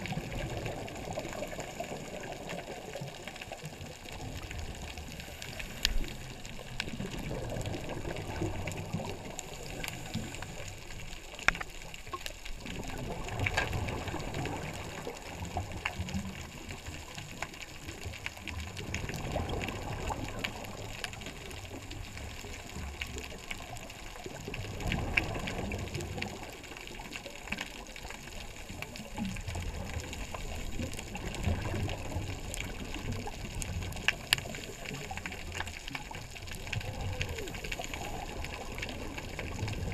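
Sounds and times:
underwater air bubbling: 0.0s - 39.9s
steady hiss: 5.0s - 6.8s.

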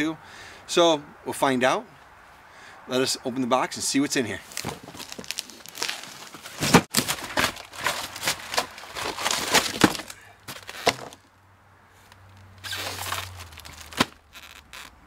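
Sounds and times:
cardboard box scraping and crackling: 4.4s - 11.2s, 12.6s - 14.9s.

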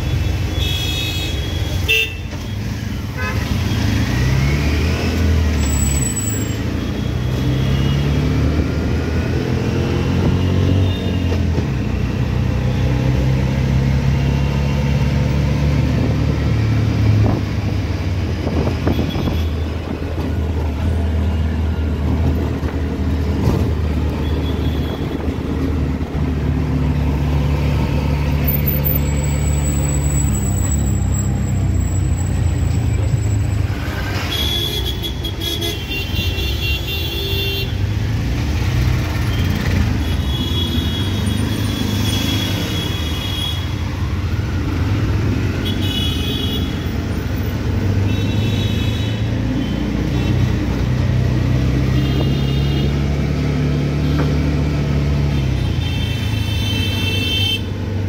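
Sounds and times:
road traffic: 0.0s - 58.0s
vehicle horns tooting: 0.5s - 3.9s, 34.2s - 37.8s, 51.8s - 53.0s, 55.4s - 57.7s.

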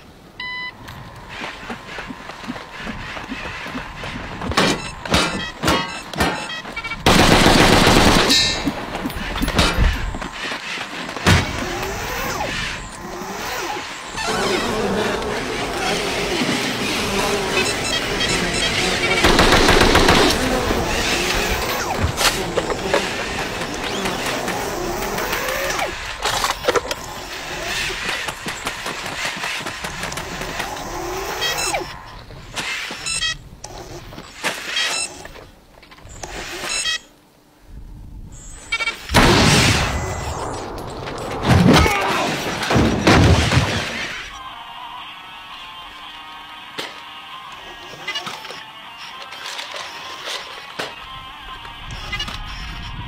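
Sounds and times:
robot servo motors whirring: 1.0s - 37.1s.

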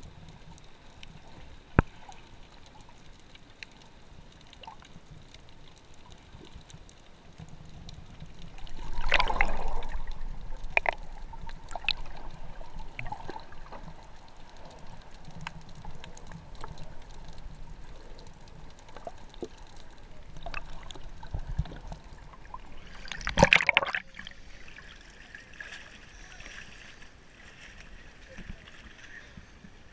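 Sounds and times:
small clicks underwater: 0.0s - 24.3s
muffled underwater sloshing: 0.0s - 29.9s
water sounds in open air: 0.0s - 29.9s
loud splash: 23.1s - 24.2s.

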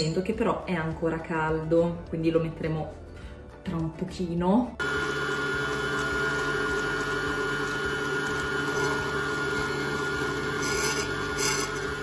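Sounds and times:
stand mixer running: 4.8s - 12.0s.

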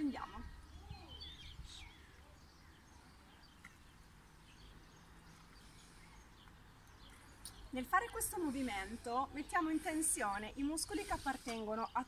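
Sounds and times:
faint bird chirps: 0.2s - 7.8s.

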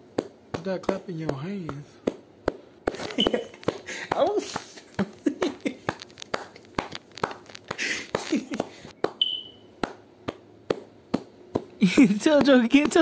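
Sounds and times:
sharp clap-like pops: 0.1s - 5.2s, 5.8s - 13.0s
high whistle-like tone: 9.2s - 9.7s
short squeaky chirps: 9.2s - 9.7s.

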